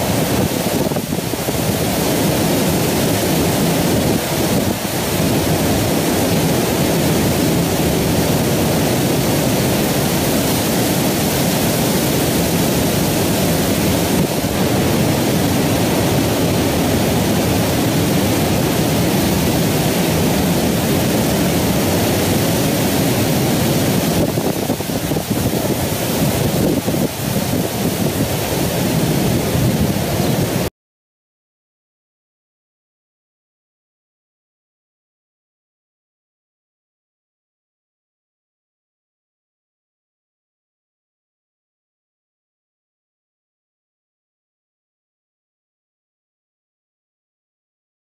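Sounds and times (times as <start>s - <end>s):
steady rushing noise: 0.0s - 30.7s.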